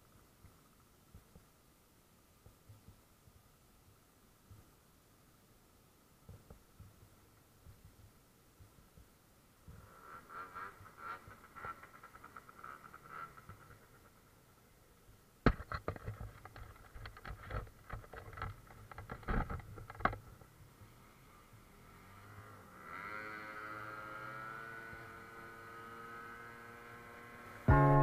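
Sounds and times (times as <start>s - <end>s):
clicks and knocks on camera case: 15.5s - 20.3s.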